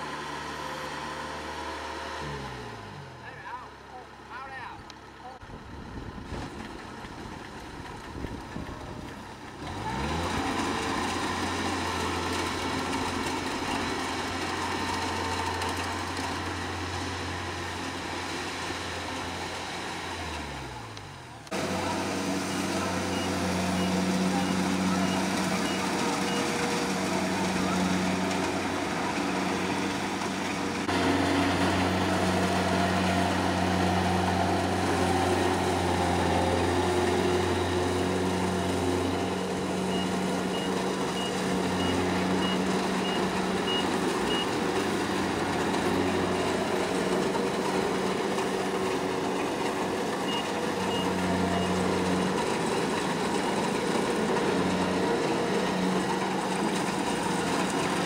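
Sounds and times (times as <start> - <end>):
diesel engine running: 0.0 - 58.0
reversing alarm beeping: 22.5 - 26.5, 39.2 - 44.5.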